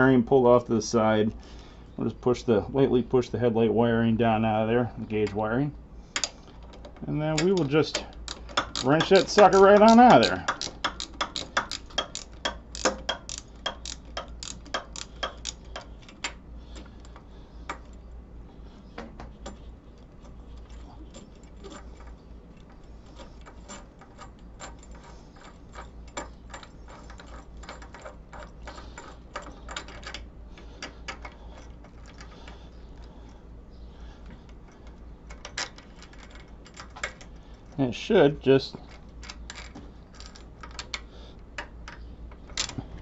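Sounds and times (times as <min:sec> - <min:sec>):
ratchet wrench clicking: 0:07.4 - 0:16.4.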